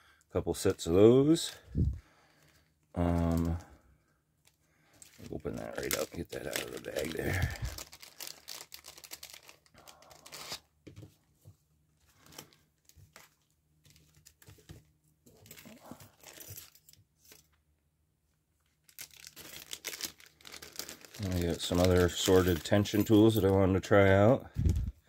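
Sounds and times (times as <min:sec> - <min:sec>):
plastic bags crinkling: 0:02.3 - 0:03.7, 0:04.4 - 0:10.6, 0:12.1 - 0:14.7, 0:15.3 - 0:17.4, 0:18.6 - 0:23.7.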